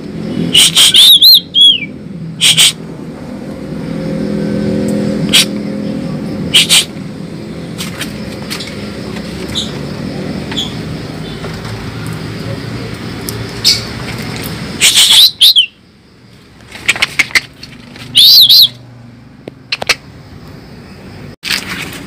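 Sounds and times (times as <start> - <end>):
bird whistles: 0.5 - 2.8, 14.8 - 15.8, 18.2 - 18.8
starling calling loudly: 0.5 - 2.8, 6.5 - 7.0, 14.8 - 15.8, 18.1 - 18.8.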